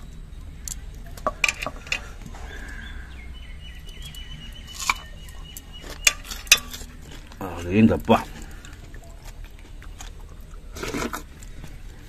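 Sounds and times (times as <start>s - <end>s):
rural outdoor ambience: 0.0s - 12.0s
high pulsing chirp: 2.1s - 7.9s.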